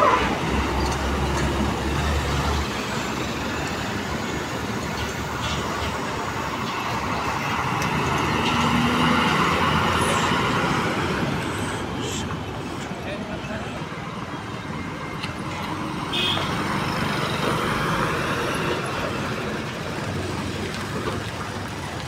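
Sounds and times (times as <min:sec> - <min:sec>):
diesel trucks passing: 0:00.0 - 0:22.0
tyres on road: 0:00.0 - 0:22.0.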